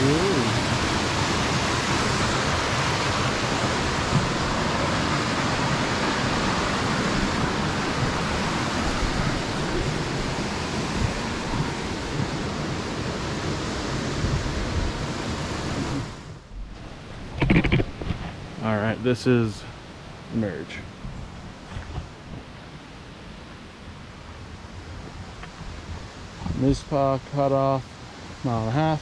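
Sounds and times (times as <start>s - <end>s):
brook water rushing over rocks: 0.0s - 19.5s.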